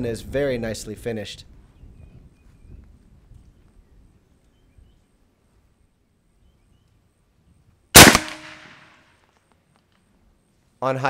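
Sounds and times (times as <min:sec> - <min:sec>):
air rifle shot: 0:08.0 - 0:08.9.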